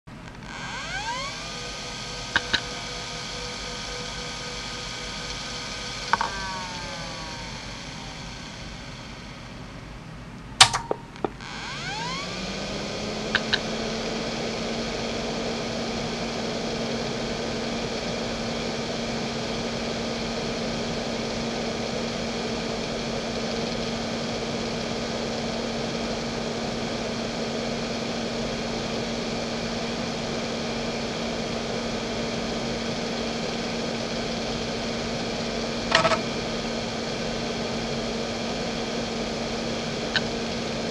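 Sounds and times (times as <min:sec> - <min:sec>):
hard drive hum and hiss: 0:00.1 - 0:40.9
hard drive whine: 0:00.1 - 0:40.9
hard drive click: 0:02.4 - 0:02.8, 0:06.0 - 0:08.1, 0:10.6 - 0:12.2, 0:13.3 - 0:13.7, 0:35.9 - 0:36.3, 0:40.1 - 0:40.4
light head clicks: 0:10.6 - 0:11.3.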